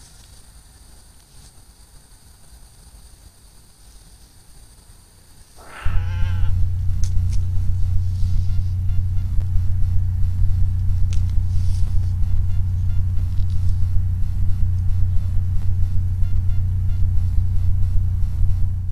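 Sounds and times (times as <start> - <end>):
soft hissing: 0.0 - 6.6, 11.2 - 13.9
camera recording hum: 0.0 - 18.9.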